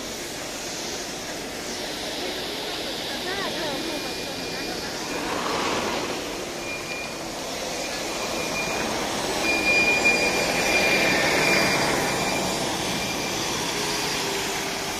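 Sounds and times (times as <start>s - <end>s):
thin high whine: 0.0s - 14.9s
bus driving past on slushy ice: 4.8s - 14.9s.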